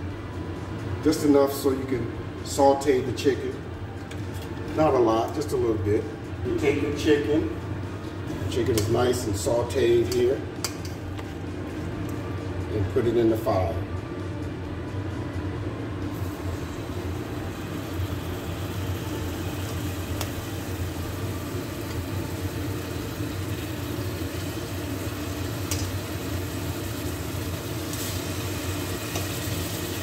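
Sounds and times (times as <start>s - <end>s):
chicken sizzling in hot oil: 16.2s - 30.0s.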